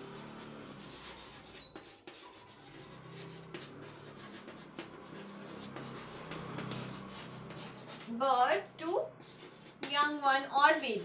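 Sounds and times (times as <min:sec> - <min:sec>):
chalk scratching on chalkboard: 0:00.0 - 0:11.0
chalk tapping on board: 0:00.0 - 0:11.0.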